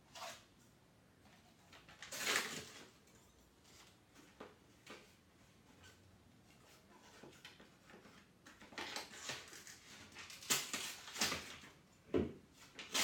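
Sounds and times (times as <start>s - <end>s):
paper rustling and crinkling: 1.3s - 3.0s, 3.6s - 11.8s, 12.5s - 13.0s.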